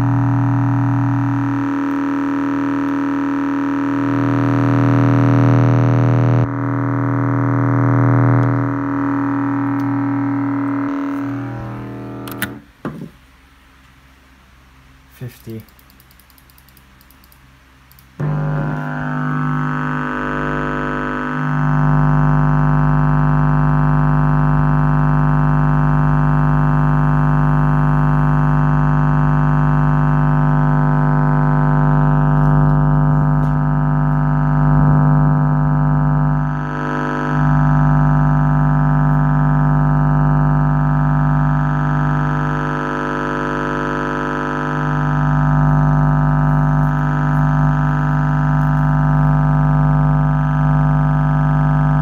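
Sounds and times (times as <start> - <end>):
subwoofer test tone buzzing: 0.0 - 13.3, 18.1 - 52.0
sharp clicks: 12.2 - 12.6, 15.4 - 18.1.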